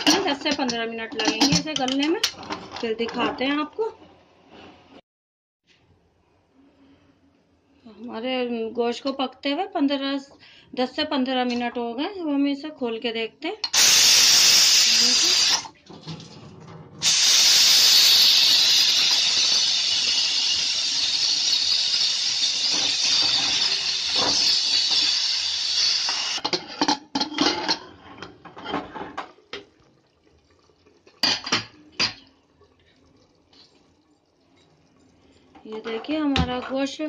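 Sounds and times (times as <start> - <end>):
metal lid clinks and knocks: 0.0 - 2.5
pressure cooker steam hiss: 13.7 - 15.7, 17.0 - 26.4.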